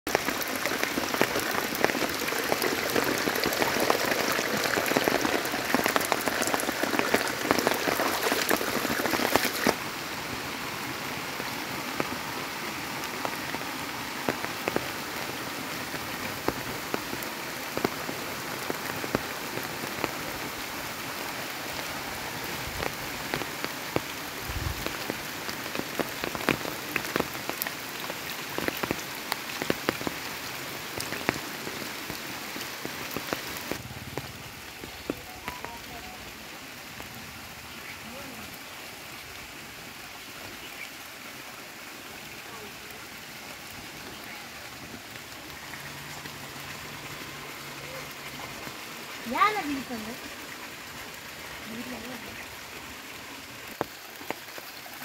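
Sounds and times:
heavy rain on water: 0.1s - 55.0s.

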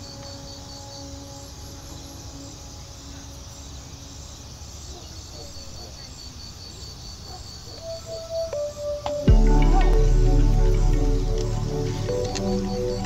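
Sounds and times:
soft ambient music: 0.0s - 5.8s, 7.7s - 13.0s
faint pulsing high tone: 9.3s - 13.0s.

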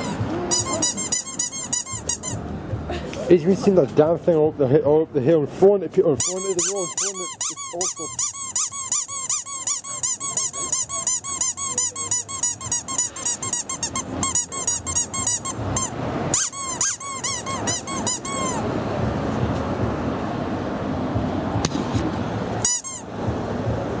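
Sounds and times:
rubber squeaky toy squeaking: 0.0s - 2.4s, 6.2s - 18.7s, 22.6s - 23.1s.

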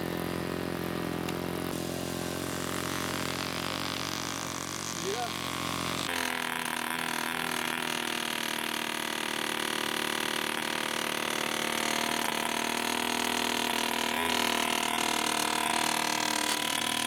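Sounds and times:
model aircraft engine running: 0.0s - 17.0s.

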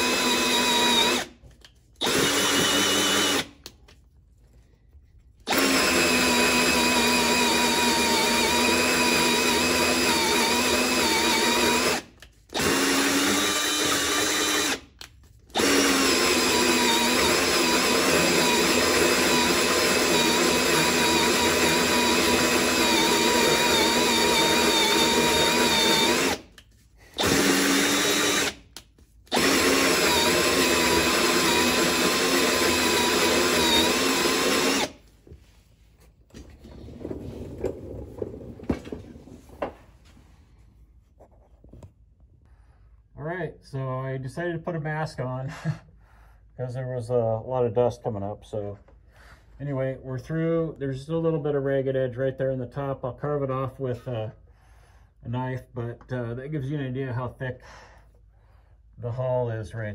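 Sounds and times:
power drill cutting fiberglass: 0.0s - 1.4s, 2.0s - 3.5s, 5.5s - 14.9s, 15.5s - 28.6s, 29.3s - 35.0s.

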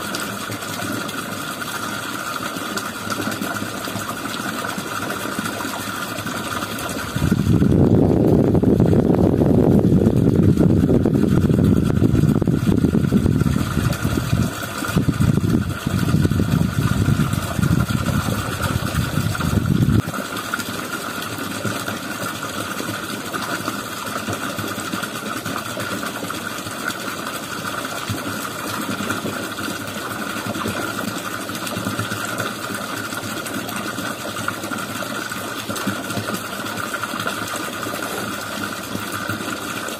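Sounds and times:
water pump engine running: 0.0s - 39.9s
loud rough low rumble: 15.0s - 20.0s.

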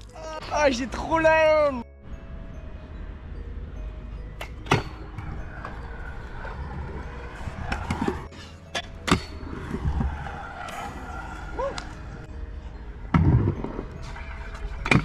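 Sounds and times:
scooter wheels rolling on concrete: 4.7s - 15.0s.

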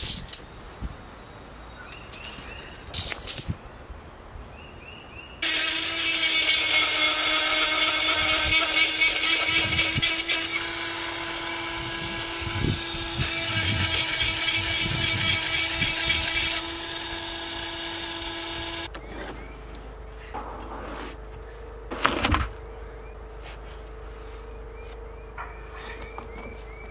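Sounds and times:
chainsaw chain cutting wood: 5.4s - 18.9s
chainsaw engine running: 5.4s - 18.9s.

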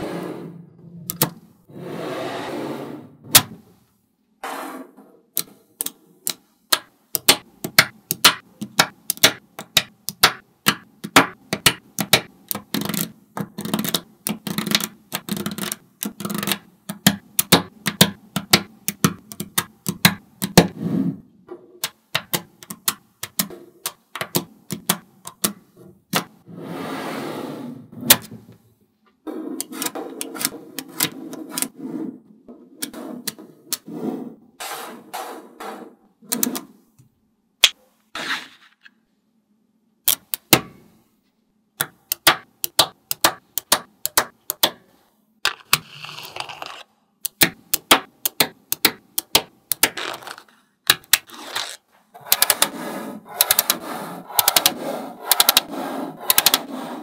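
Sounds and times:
magnet balls clicking together: 5.8s - 20.6s.

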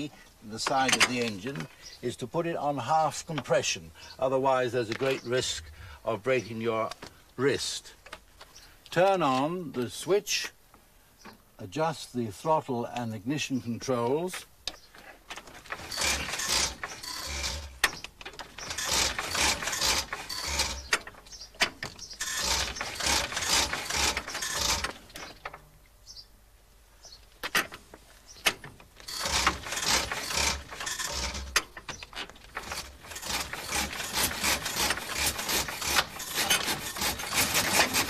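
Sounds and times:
engine cranking clatter: 15.4s - 25.6s, 28.5s - 38.0s.

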